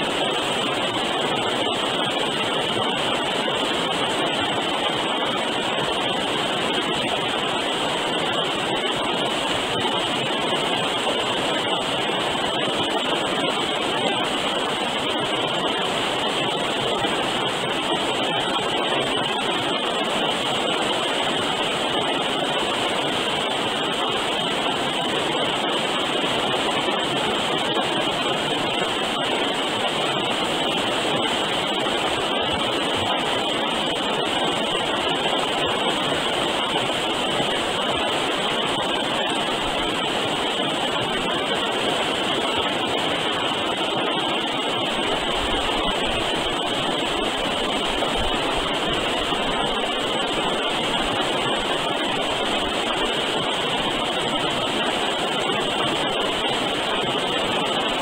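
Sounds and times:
river rushing over rapids: 0.0s - 58.0s.

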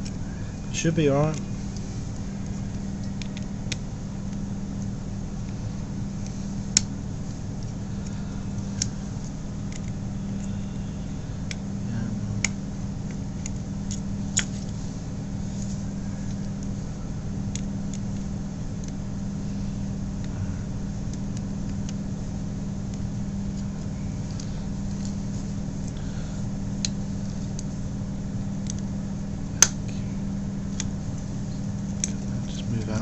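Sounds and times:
low background hum: 0.0s - 33.0s.

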